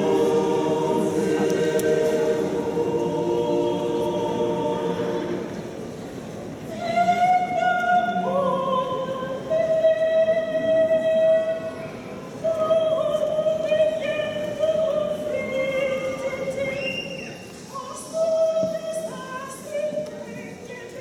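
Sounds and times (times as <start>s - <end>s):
mixed choir singing: 0.0s - 6.1s, 6.7s - 11.6s.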